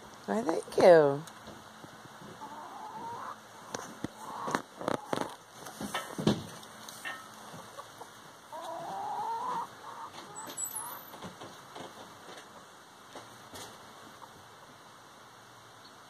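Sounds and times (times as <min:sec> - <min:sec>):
hens clucking: 0:02.2 - 0:06.2, 0:06.9 - 0:10.9.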